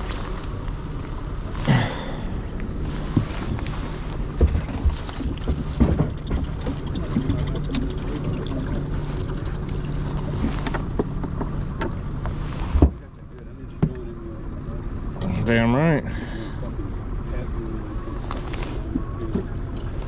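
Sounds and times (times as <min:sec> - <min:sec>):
steady low hum: 0:00.0 - 0:20.0
knocks and rattles in plastic cooler: 0:03.1 - 0:08.8.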